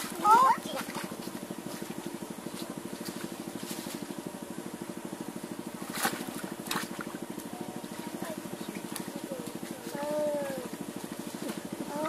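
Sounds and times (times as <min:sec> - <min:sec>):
small engine running: 0:00.0 - 0:12.0.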